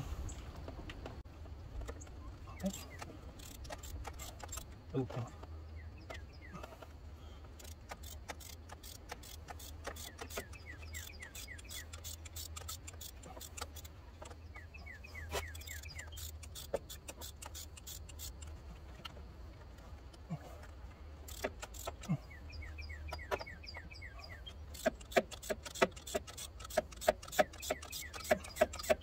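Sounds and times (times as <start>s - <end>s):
socket ratchet clicking: 2.7s - 4.8s, 7.5s - 14.4s, 15.4s - 18.6s, 21.2s - 22.1s, 24.6s - 29.0s
quick high chirps: 8.0s - 13.9s, 14.8s - 18.3s, 21.3s - 29.0s.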